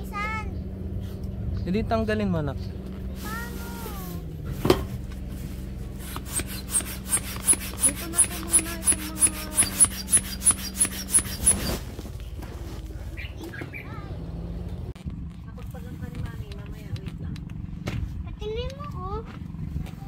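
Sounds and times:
manual air pump strokes: 5.9 - 13.1.

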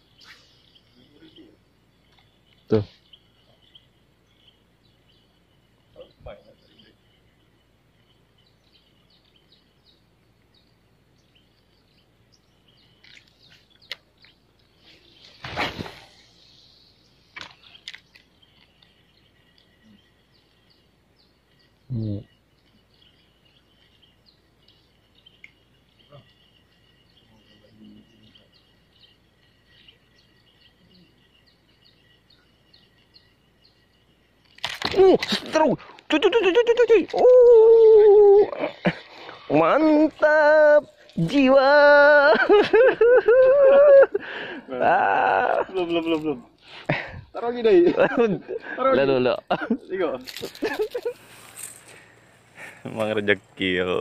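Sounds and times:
small bird chirps: 0.0 - 44.0
high insect hum: 0.0 - 54.0.

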